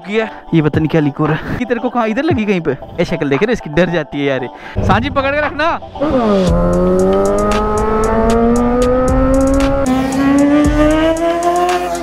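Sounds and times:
motorcycle engine revving high: 0:06.0 - 0:12.0.

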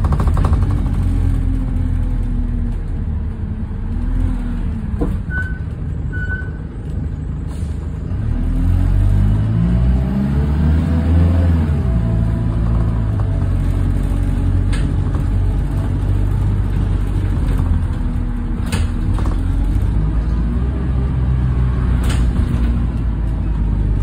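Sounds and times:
diesel bus engine: 0:00.0 - 0:24.0.

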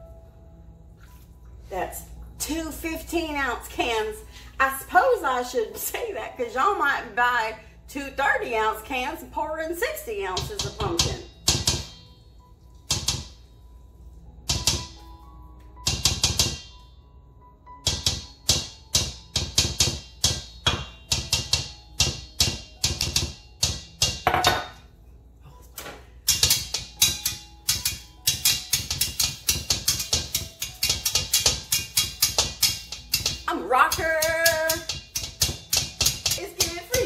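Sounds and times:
utensils clinking in metal bowl: 0:26.2 - 0:37.0.

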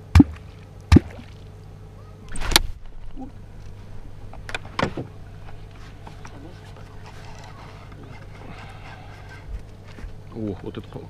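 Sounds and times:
deep plops in water: 0:00.1 - 0:01.5.

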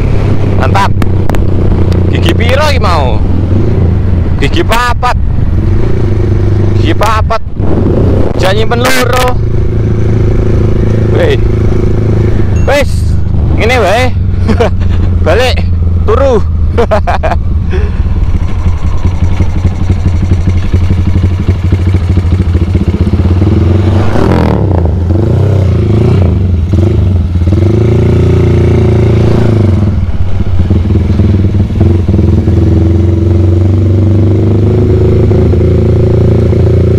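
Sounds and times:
motorcycle engine pulling: 0:17.7 - 0:28.0.

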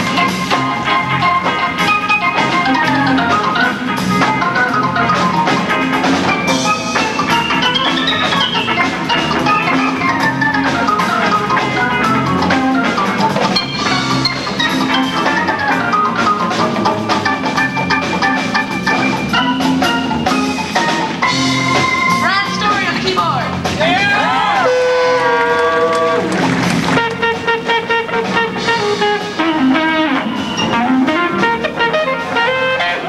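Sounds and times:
funk band playing live: 0:00.0 - 0:33.0.

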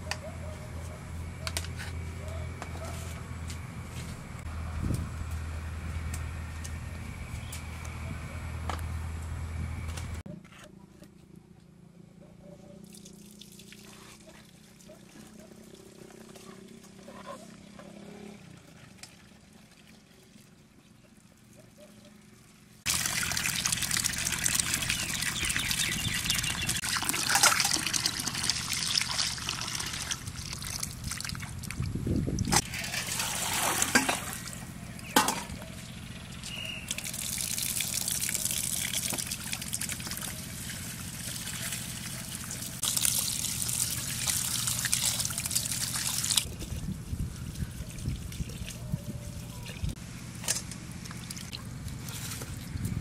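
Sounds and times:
water running into steel bowl: 0:22.9 - 0:31.5, 0:36.9 - 0:46.5
water splashing: 0:22.9 - 0:31.8, 0:32.6 - 0:34.6, 0:36.9 - 0:46.5.

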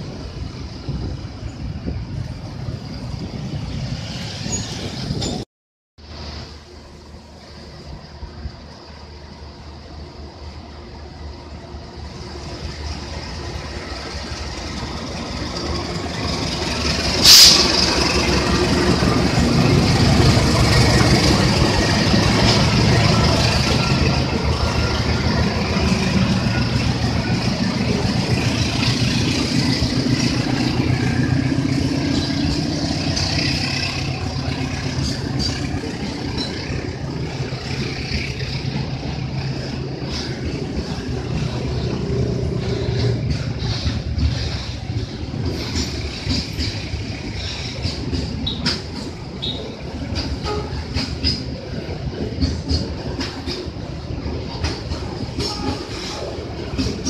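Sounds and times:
locomotive diesel engine: 0:06.0 - 0:57.0
loud hiss: 0:16.6 - 0:18.4.

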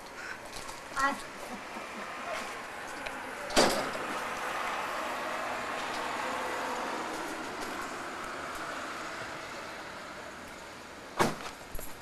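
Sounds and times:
door slamming shut: 0:03.5 - 0:04.0, 0:11.2 - 0:11.5.

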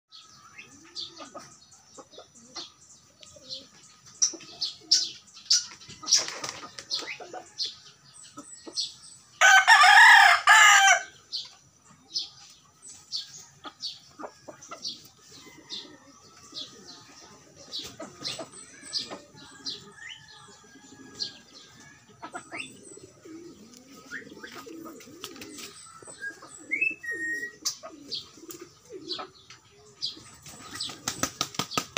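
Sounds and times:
rooster crowing: 0:09.4 - 0:11.1.

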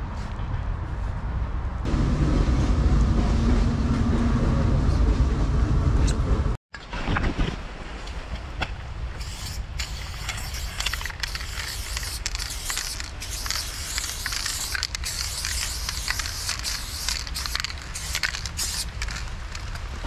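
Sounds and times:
low steady rumble: 0:00.6 - 0:06.6
spray paint can hissing: 0:09.2 - 0:19.8.

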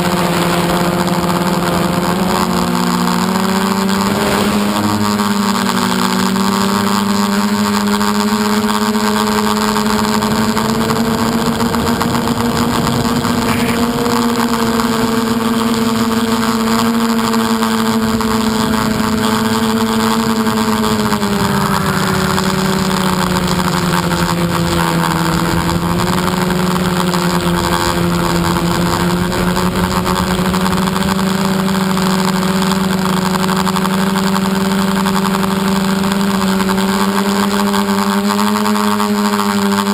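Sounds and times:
model aircraft motor humming: 0:00.0 - 0:39.9
rushing air: 0:04.0 - 0:05.7, 0:12.5 - 0:14.2.

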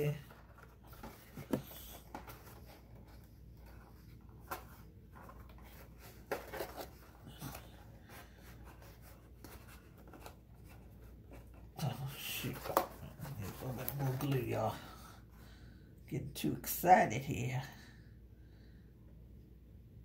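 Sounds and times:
cardstock rubbing and crinkling: 0:00.0 - 0:14.9.

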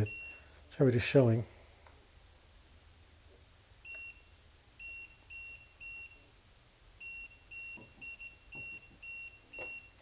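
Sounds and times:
voltage detector pen beeping: 0:03.8 - 0:06.2, 0:07.0 - 0:10.0.

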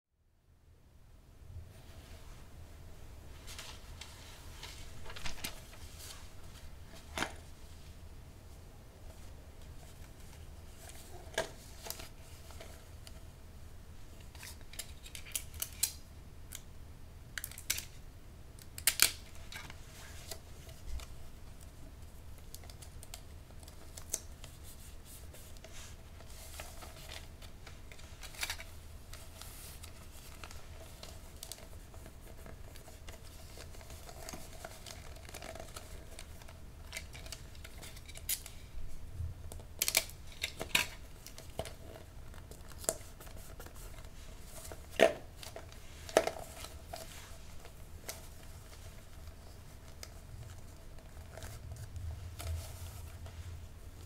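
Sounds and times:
faint steady hum: 0:00.2 - 0:54.0
wrapping paper crinkling: 0:03.4 - 0:07.2, 0:18.8 - 0:38.7.

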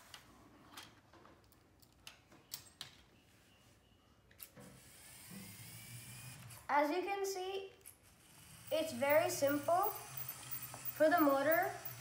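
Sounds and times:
electric motor humming: 0:08.1 - 0:12.0.

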